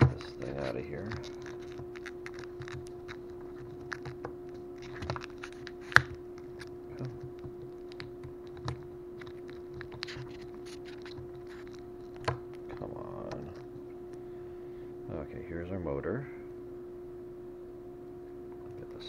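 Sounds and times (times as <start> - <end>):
plastic packaging crackling: 0.0 - 12.8.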